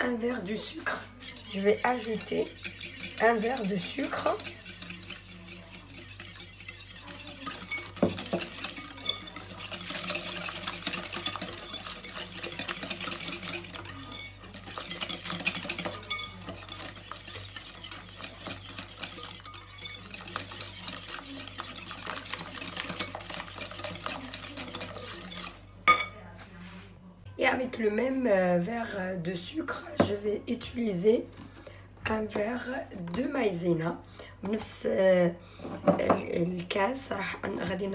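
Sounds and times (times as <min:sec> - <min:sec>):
whisk rattling against bowl: 0:00.2 - 0:26.1.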